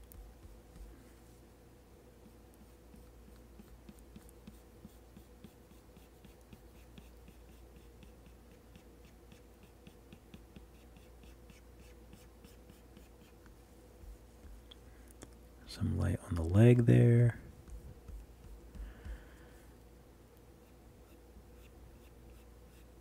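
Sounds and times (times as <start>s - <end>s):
faint steady hum: 0.0s - 23.0s
stylus tapping on screen: 17.6s - 19.3s.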